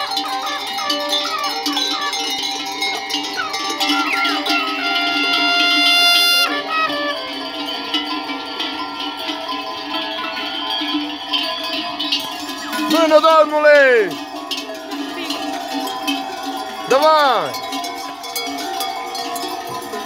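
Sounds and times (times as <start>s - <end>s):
held steady tone: 0.0s - 9.0s
livestock bells clanking: 0.0s - 20.0s.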